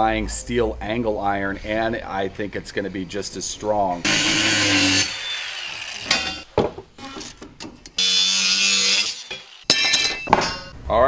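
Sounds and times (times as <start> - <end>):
angle grinder cutting metal: 4.0 - 6.4, 8.0 - 9.7.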